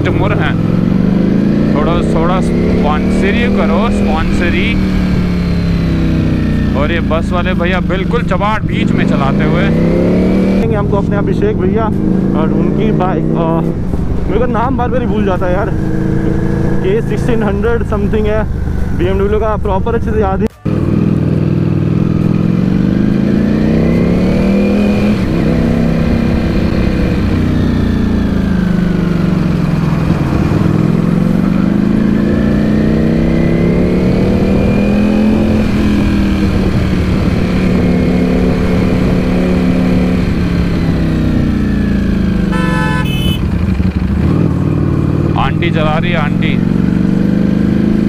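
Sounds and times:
motorcycle engine accelerating: 0.0 - 48.0
horn beep: 42.5 - 43.6.

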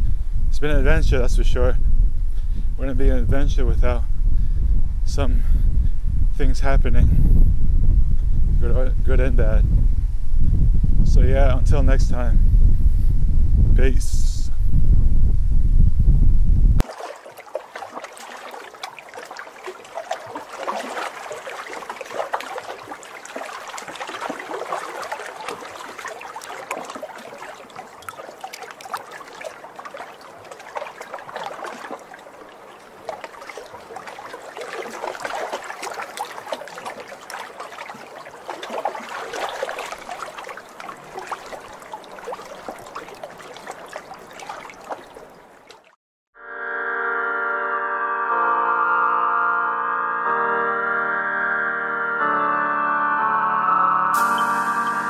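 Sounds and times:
waves lapping at shore: 16.8 - 46.0.

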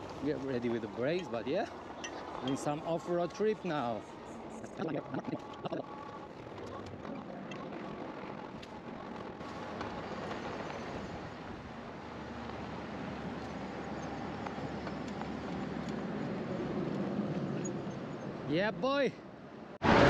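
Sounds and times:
bike tyres rolling on gravel: 0.0 - 4.0, 4.8 - 17.4.

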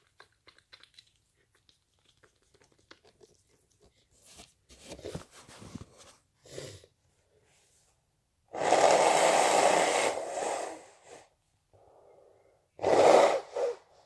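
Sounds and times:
person blowing nose: 8.5 - 11.3, 12.8 - 14.0.

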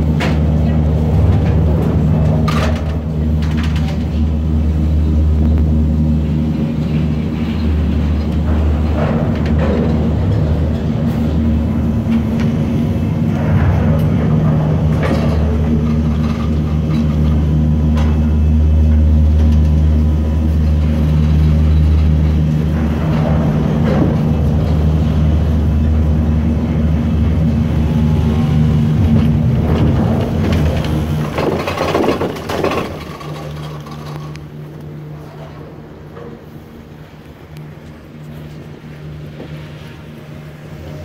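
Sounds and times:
gondola machinery humming: 0.0 - 41.0
cabins clattering: 29.5 - 34.3.

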